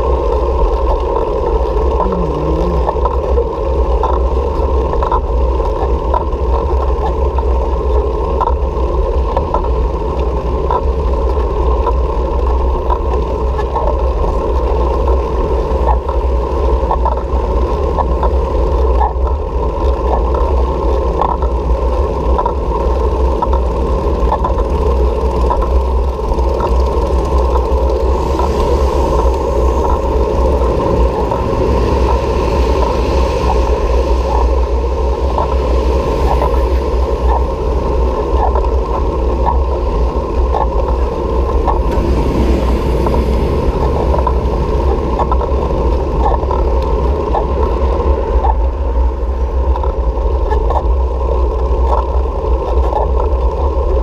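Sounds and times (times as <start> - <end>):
steady rushing noise: 0.0 - 54.0
wind rumble on microphone: 0.0 - 54.0
faint regular ticks: 0.6 - 41.9.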